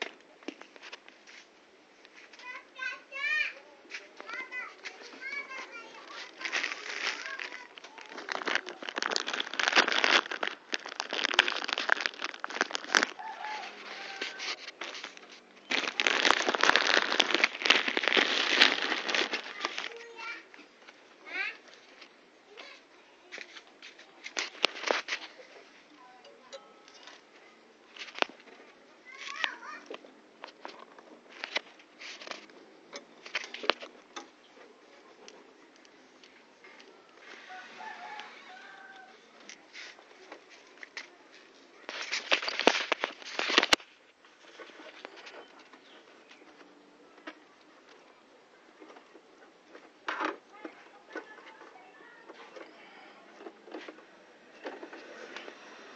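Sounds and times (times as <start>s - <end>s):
hands handling plastic parts: 3.9s - 20.2s, 23.4s - 25.4s, 27.9s - 34.4s, 35.2s - 48.0s
plastic bag crinkling: 4.2s - 20.4s, 24.2s - 25.4s, 27.9s - 28.5s, 33.2s - 33.9s, 37.2s - 46.2s.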